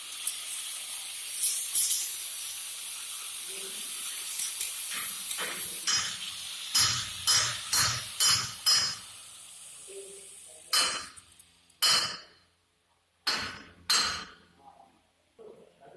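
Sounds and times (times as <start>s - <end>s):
sharp metallic clanks: 4.9s - 9.0s, 10.7s - 12.4s, 13.2s - 14.5s.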